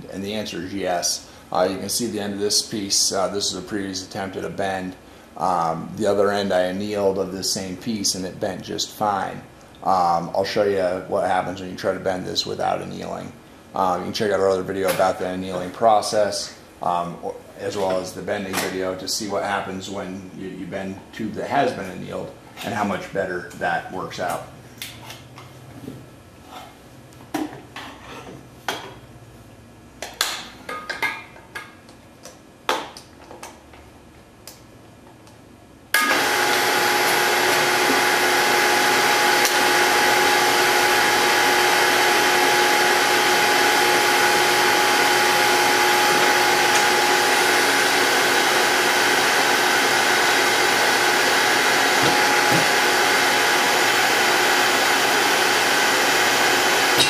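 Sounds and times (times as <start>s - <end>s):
hydraulic pump whining: 36.0s - 57.0s.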